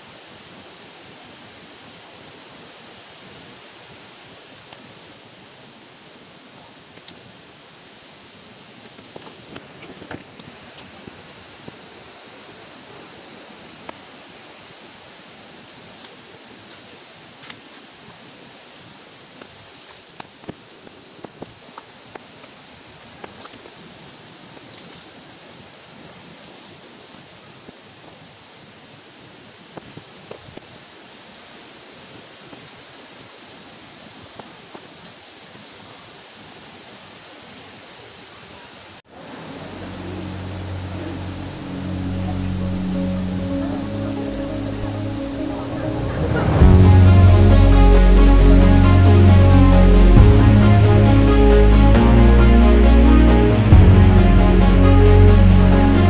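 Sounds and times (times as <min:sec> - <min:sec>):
outdoor hiss: 0:00.0 - 0:56.0
falling water rushing: 0:39.1 - 0:56.0.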